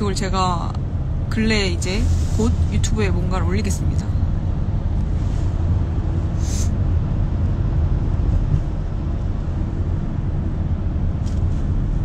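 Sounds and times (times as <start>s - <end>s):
car engine and road noise: 0.0s - 12.0s
short hiss: 6.4s - 6.8s.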